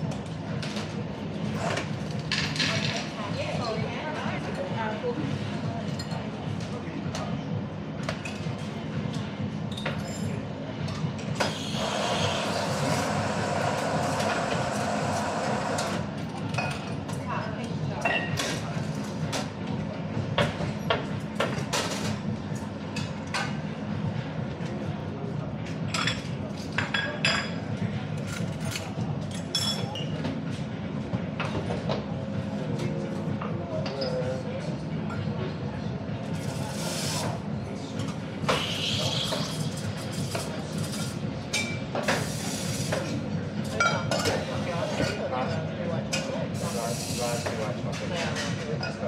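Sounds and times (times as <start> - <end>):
low hum of cafe machinery: 0.0 - 49.0
clatter of cups and crockery: 1.6 - 3.2, 38.0 - 49.0.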